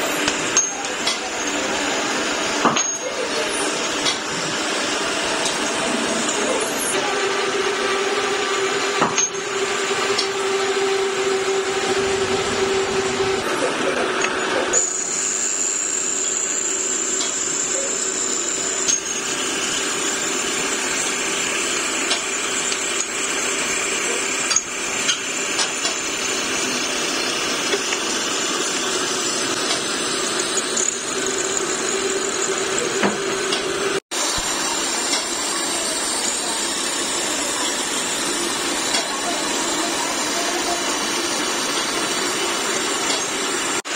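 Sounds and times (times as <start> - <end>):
motor hum: 0.0 - 43.8
thin high whine: 0.0 - 43.8
grinding wheel grinding steel: 0.0 - 43.9.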